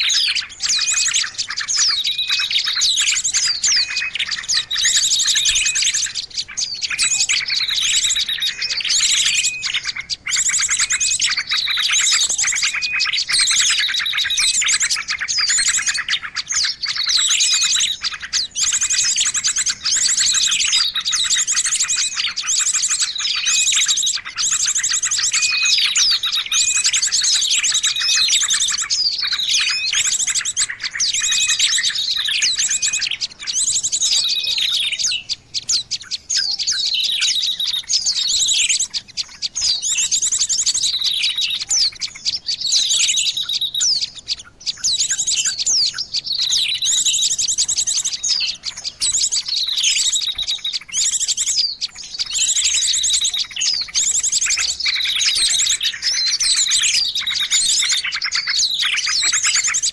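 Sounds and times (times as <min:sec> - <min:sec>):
small songbirds calling: 0:00.0 - 0:59.9.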